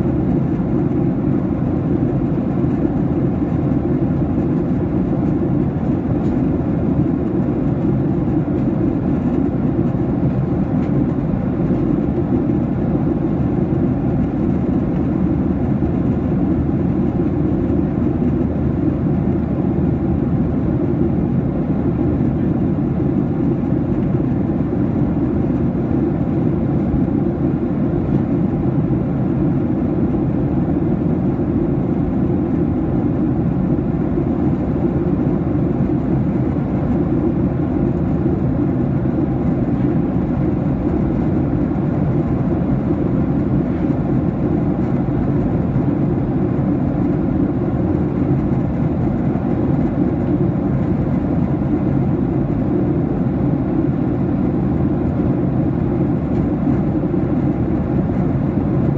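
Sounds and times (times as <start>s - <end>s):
airplane cabin noise: 0.0s - 58.9s.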